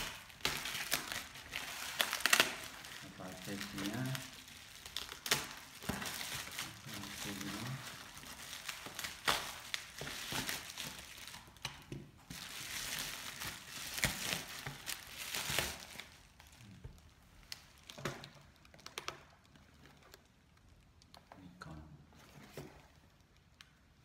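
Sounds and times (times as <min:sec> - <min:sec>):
bubble wrap crinkling and rustling: 0:00.0 - 0:21.4.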